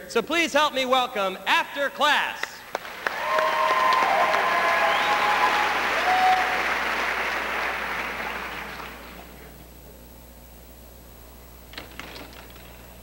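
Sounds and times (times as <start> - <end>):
audience applauding and cheering: 2.6 - 9.4.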